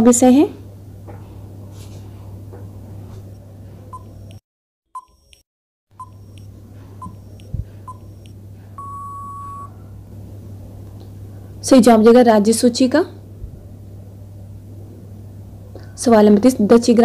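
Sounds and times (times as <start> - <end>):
short electronic beeps: 5.0 - 5.4, 6.0 - 9.7
long electronic beep: 7.0 - 9.8.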